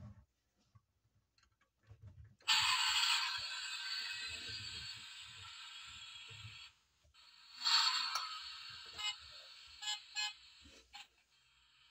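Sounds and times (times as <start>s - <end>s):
toy car sound chip: 7.6s - 11.1s.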